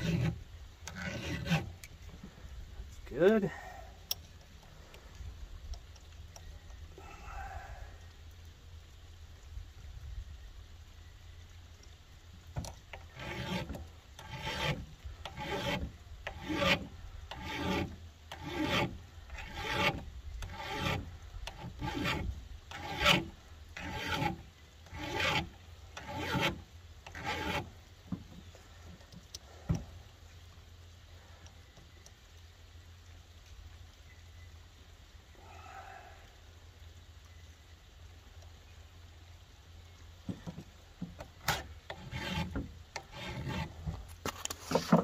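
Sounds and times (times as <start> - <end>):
file rasping on chainsaw chain: 0.0 - 1.9, 12.6 - 27.7, 41.4 - 43.8.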